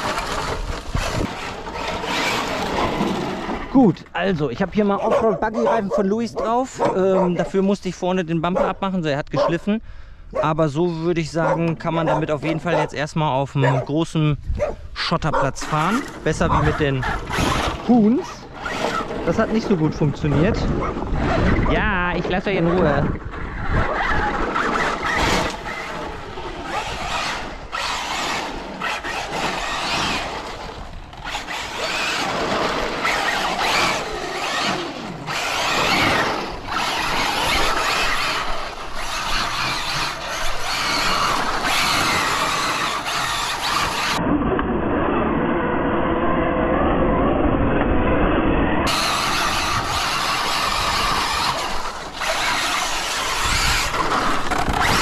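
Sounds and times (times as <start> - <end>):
rc car motor whining: 0.0 - 3.8, 11.4 - 12.9, 15.6 - 44.2, 48.8 - 55.0
tyres squealing on concrete: 10.4 - 14.0, 31.1 - 44.2, 48.9 - 55.0.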